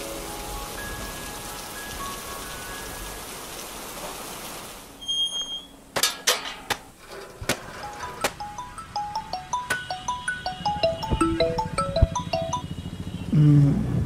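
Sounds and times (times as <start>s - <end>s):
steady rain falling: 0.0s - 5.1s
held music notes: 7.7s - 12.8s.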